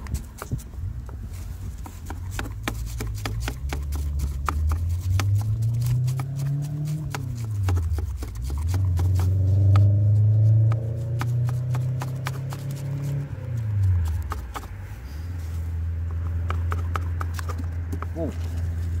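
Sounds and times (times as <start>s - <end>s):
fish scaler scraping scales: 1.9s - 10.0s.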